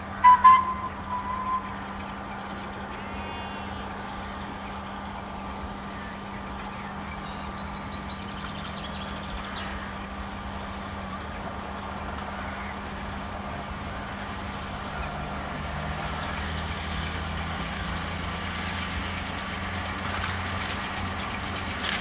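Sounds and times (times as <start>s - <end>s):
distant steam train rumble: 0.0s - 22.0s
short high tone: 0.2s - 1.8s.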